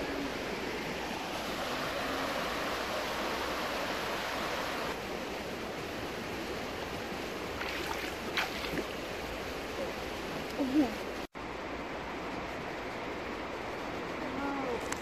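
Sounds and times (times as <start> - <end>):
river water rippling over stones: 0.0 - 10.5.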